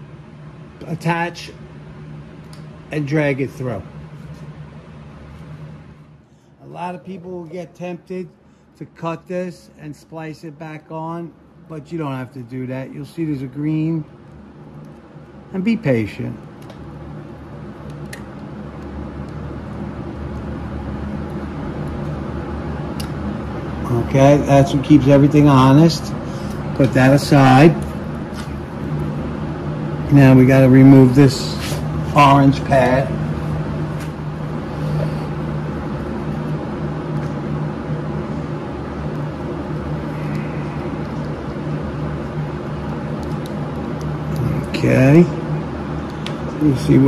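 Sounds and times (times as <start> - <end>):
engine humming: 11.4 - 47.0.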